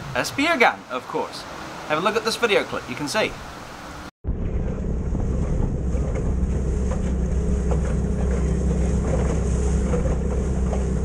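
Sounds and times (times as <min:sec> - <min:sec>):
outboard motor running: 0:04.3 - 0:11.0
wind on microphone: 0:04.4 - 0:11.0.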